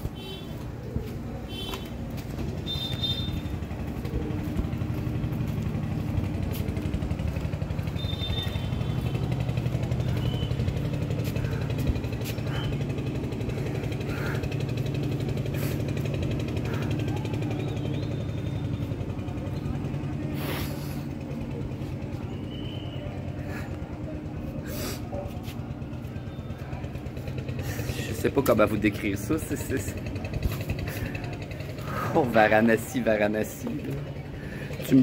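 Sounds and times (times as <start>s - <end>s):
machine rumbling with pulsing beat: 0.1s - 20.4s.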